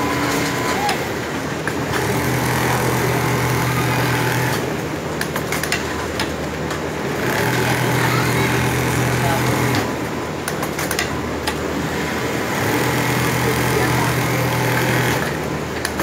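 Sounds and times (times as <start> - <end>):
sewing machine stitching: 1.8 - 4.8, 7.0 - 9.9, 12.1 - 16.0.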